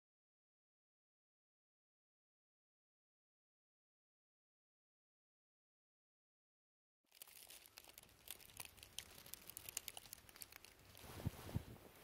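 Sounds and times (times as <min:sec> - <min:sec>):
dry leaves crackling and rustling: 0:07.1 - 0:11.2.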